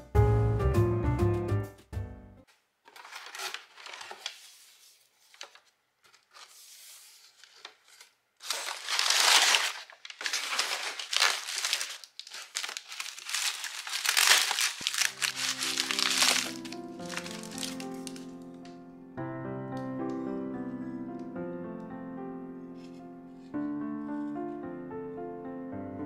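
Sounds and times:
packing paper rustling: 2.9s - 18.7s
bubble wrap crinkling: 2.9s - 18.8s.

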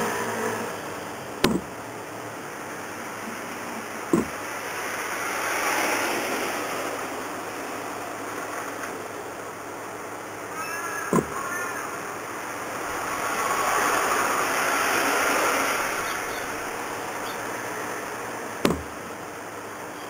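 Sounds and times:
street traffic noise: 0.0s - 20.0s
sharp knocks: 1.4s - 1.8s, 4.1s - 4.5s, 11.1s - 11.5s, 18.6s - 19.0s
vehicle passing: 10.5s - 19.1s.

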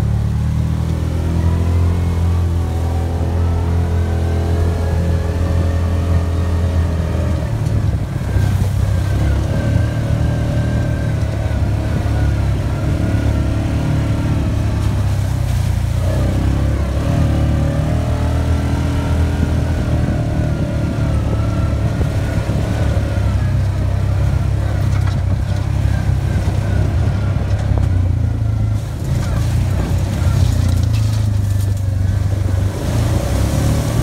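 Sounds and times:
vehicle engine droning: 0.0s - 34.0s.

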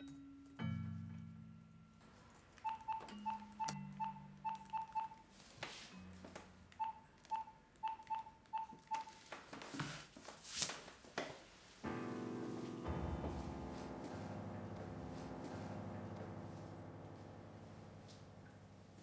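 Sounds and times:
phone keypad beeps: 2.6s - 5.2s, 6.8s - 9.2s.

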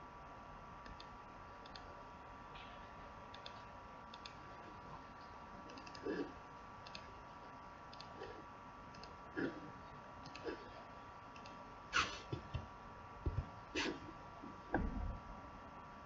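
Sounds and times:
faint electrical whine: 0.0s - 16.0s
computer mouse clicks: 0.8s - 1.9s, 3.3s - 4.4s, 5.7s - 6.1s, 6.8s - 7.1s, 7.9s - 8.3s, 8.9s - 9.2s, 10.2s - 10.6s, 11.3s - 11.6s
soft dull thumps: 12.3s - 13.6s.

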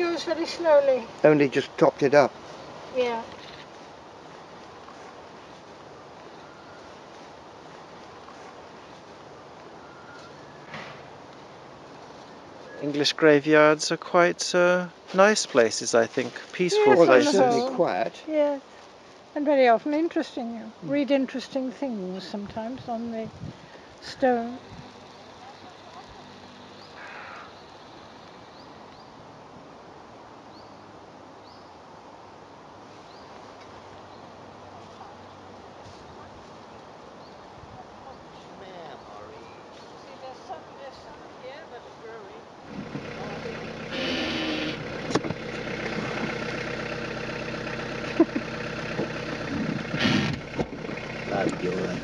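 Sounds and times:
hiss of air and leaves: 0.0s - 52.0s
car engine running: 42.7s - 52.0s.

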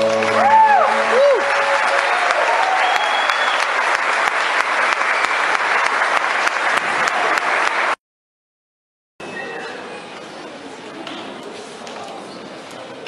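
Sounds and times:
audience clapping: 0.0s - 8.0s.

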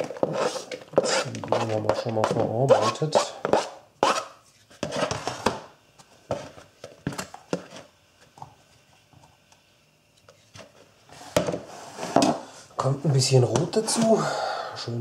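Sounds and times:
knife scraping plastic cutting board: 0.0s - 5.6s.

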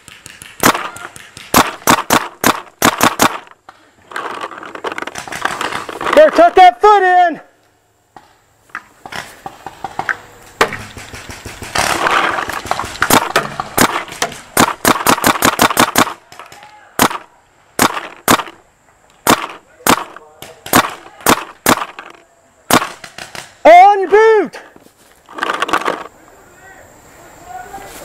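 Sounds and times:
paintball marker shots: 0.0s - 3.8s, 9.0s - 18.6s, 19.2s - 23.6s.

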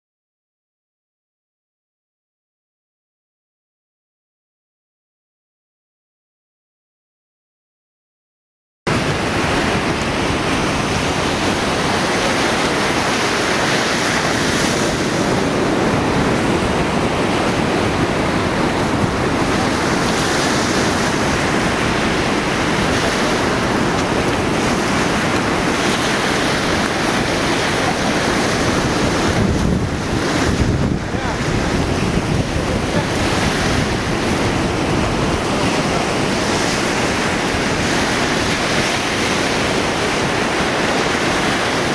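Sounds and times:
ocean surf breaking: 8.9s - 41.9s
wind buffeting microphone: 8.9s - 41.9s.

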